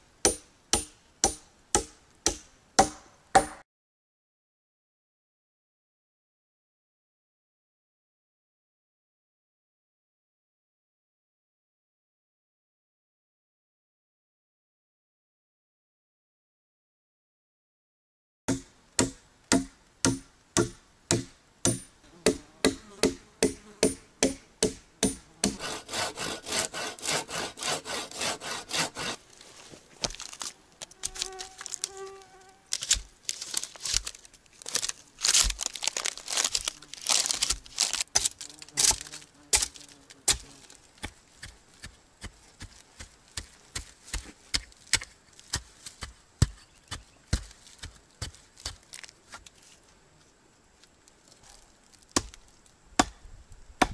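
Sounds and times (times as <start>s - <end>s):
axe striking wood: 0.2s - 3.6s, 18.5s - 29.2s, 37.3s - 40.4s, 53.0s - 53.2s.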